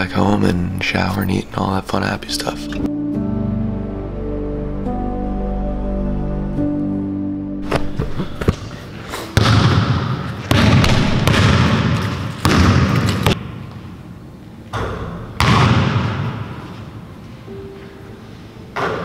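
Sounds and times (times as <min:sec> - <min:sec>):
basketball thudding on gym floor: 0:09.4 - 0:13.5, 0:14.8 - 0:16.3.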